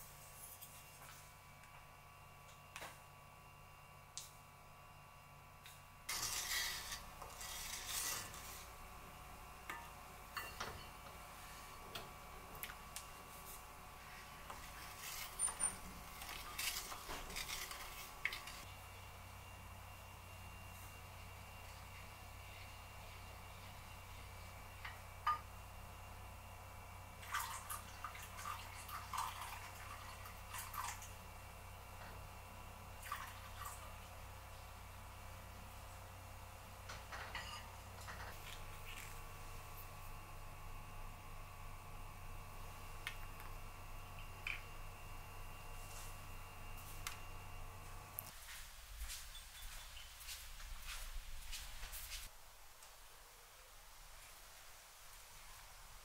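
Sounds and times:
coffee pouring and splashing: 27.2s - 31.2s, 33.0s - 33.9s.

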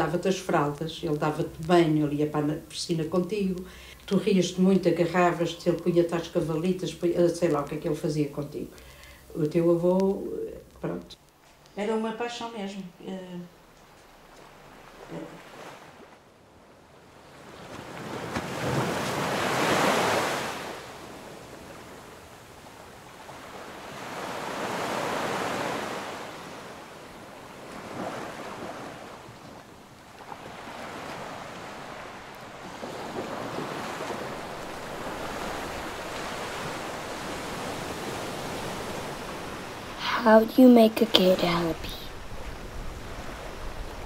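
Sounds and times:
ocean waves breaking: 13.5s - 44.0s.

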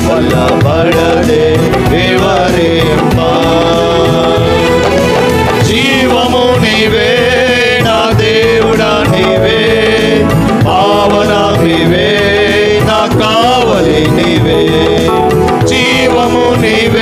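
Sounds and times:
electronic keyboard: 0.0s - 17.0s
men singing into microphones: 0.0s - 17.0s.

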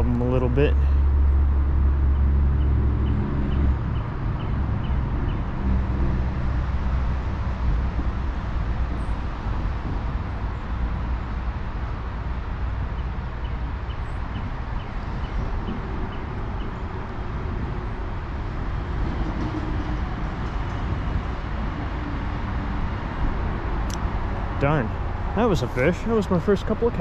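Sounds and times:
creek water rushing: 24.3s - 27.0s.

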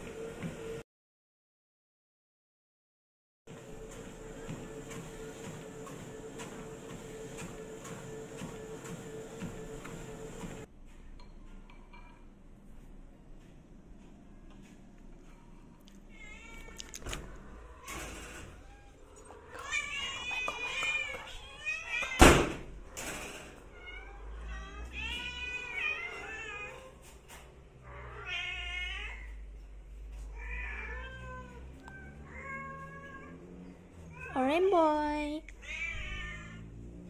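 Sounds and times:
cat meowing: 16.1s - 17.0s, 35.5s - 36.6s.

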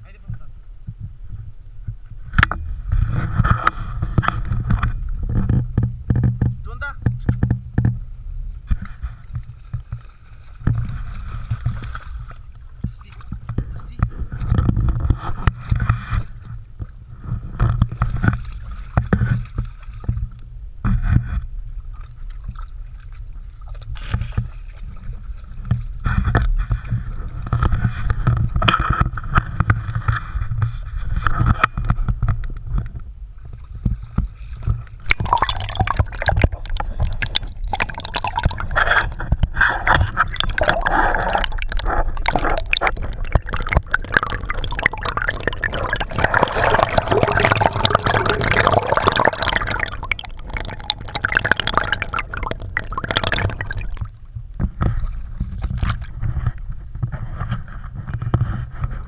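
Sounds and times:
underwater bubbling: 34.8s - 56.6s
stream water splashing: 35.0s - 54.2s.

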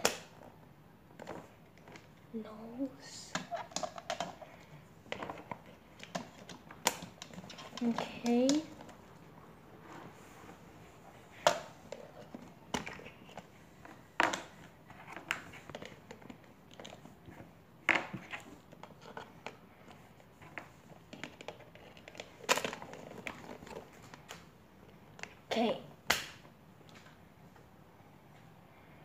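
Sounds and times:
plastic parts clicking and knocking: 3.3s - 9.0s, 11.4s - 24.4s.

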